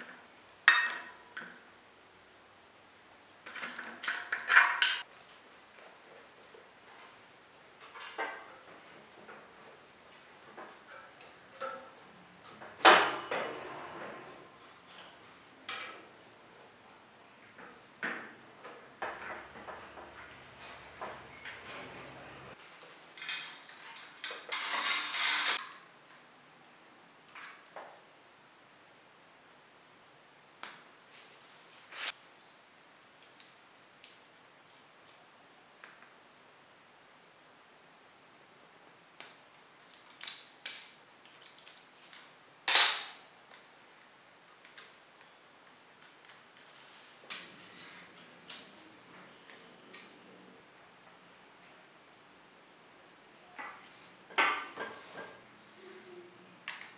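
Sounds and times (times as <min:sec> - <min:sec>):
metal bicycle chain clicking: 0:23.2 - 0:25.6
bicycle chain rattling: 0:24.5 - 0:25.6.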